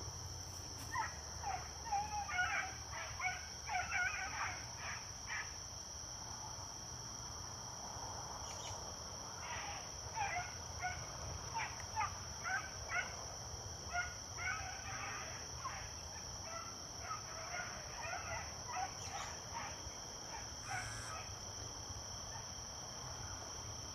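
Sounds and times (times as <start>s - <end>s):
insects buzzing: 0.0s - 23.9s
dogs baying and yelping: 0.8s - 5.4s, 9.6s - 13.1s, 13.9s - 21.3s.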